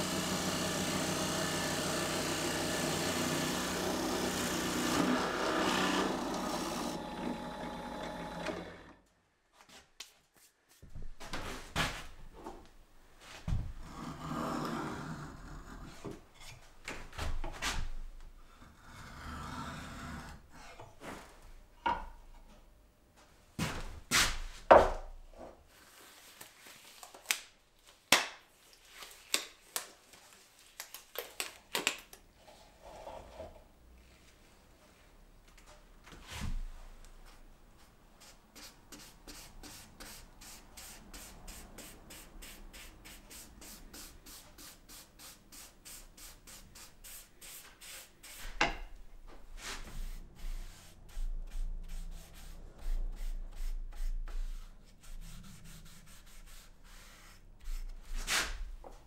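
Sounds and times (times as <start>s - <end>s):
drill press cutting wood: 0.0s - 9.0s.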